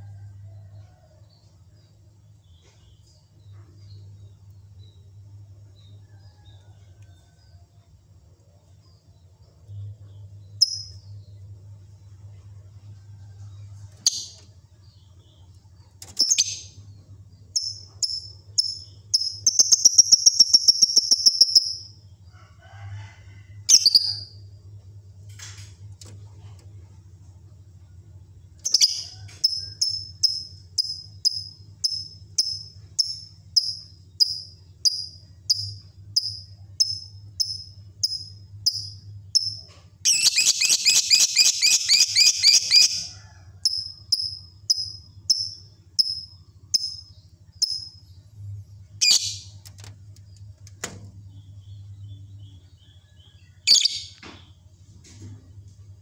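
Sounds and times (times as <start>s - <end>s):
faint low hum: 0.0s - 56.0s
lovebird chirping: 16.2s - 16.8s, 17.5s - 21.9s, 28.6s - 43.1s, 49.0s - 49.5s, 53.7s - 54.2s.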